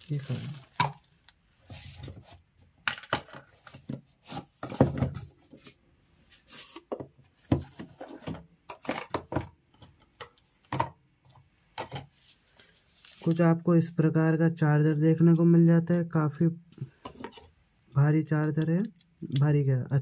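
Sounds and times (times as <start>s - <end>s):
plastic bag crinkling: 0.0s - 1.3s.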